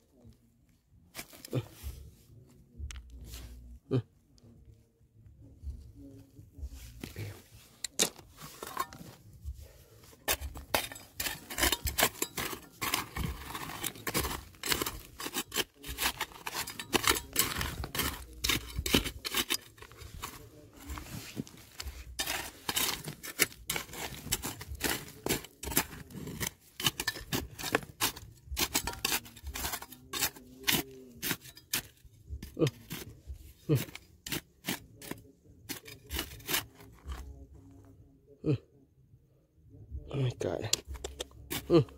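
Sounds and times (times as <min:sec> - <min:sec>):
digging tool scraping soil and stones: 0:01.1 - 0:02.0, 0:06.6 - 0:37.7, 0:40.4 - 0:41.9.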